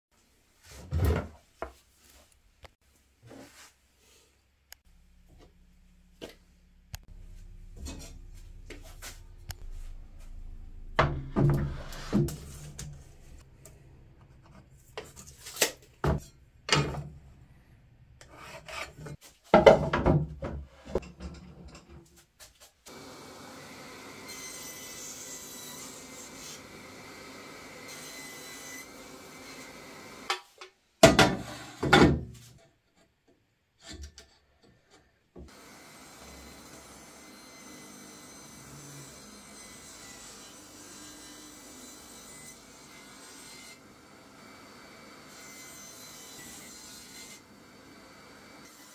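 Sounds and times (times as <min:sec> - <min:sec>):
quiet steady noise: 0:01.5 - 0:19.2.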